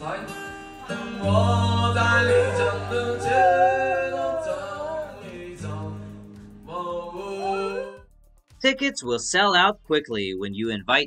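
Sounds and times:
man singing: 0.0 - 8.0
acoustic guitar chords: 0.0 - 8.9
dog howling: 1.2 - 6.0, 7.1 - 8.0.

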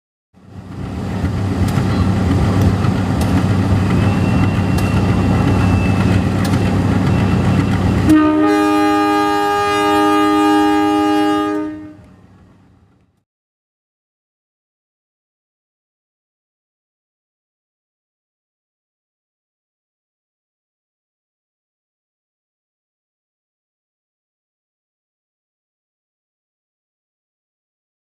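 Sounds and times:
diesel locomotive engine rumble: 0.4 - 13.2
wheels clicking over rail joints: 0.7 - 8.1
locomotive horn blast: 7.8 - 12.2.

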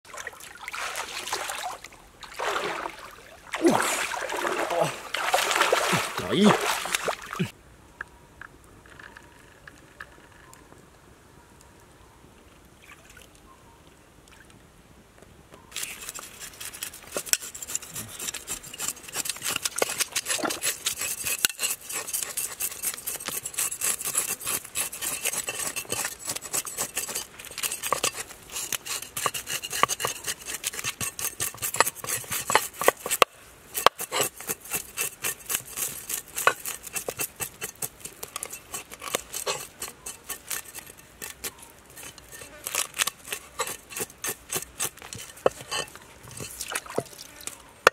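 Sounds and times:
knife scraping fish scales: 15.8 - 47.9.

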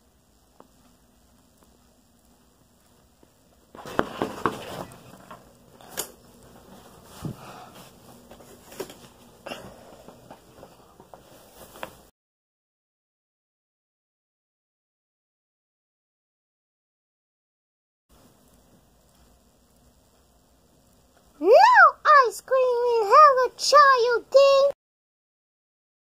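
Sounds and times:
bedding rustling: 3.7 - 12.1.

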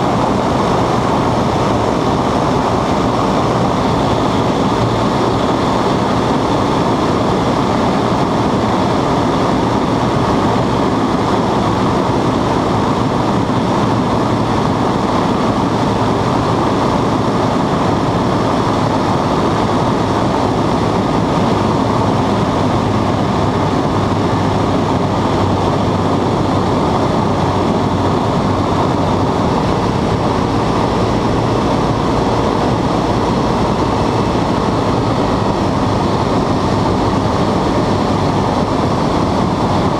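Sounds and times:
propeller aircraft engine drone: 0.0 - 39.9.

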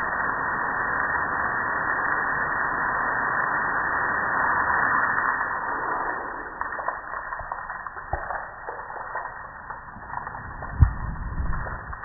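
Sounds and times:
water dripping onto concrete: 5.2 - 12.0.

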